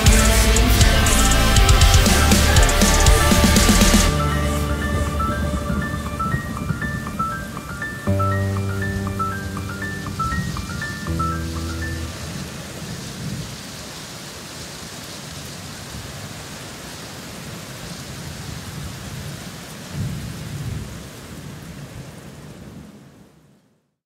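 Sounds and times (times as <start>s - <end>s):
rain hissing: 0.0s - 22.4s.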